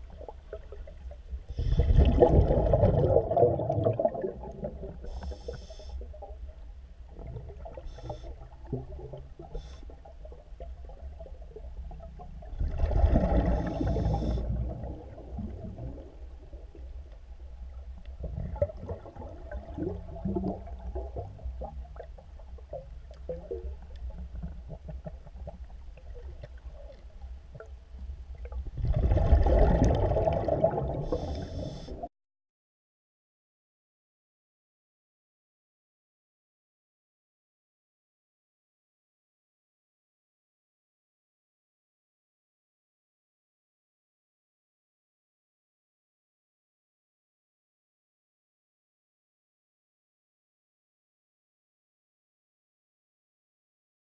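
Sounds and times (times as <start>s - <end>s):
exhaled bubbles rushing: 0.0s - 5.2s, 12.0s - 16.7s, 18.2s - 22.0s, 28.5s - 32.1s
low underwater rumble: 0.0s - 32.1s
regulator inhale hiss: 5.0s - 6.0s, 7.9s - 8.4s, 9.5s - 10.0s, 13.6s - 14.5s, 31.0s - 32.1s.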